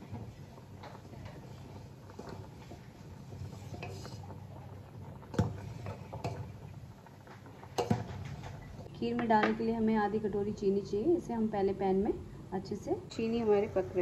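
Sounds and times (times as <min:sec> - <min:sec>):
ladle stirring thick pudding: 0:00.0 - 0:08.6.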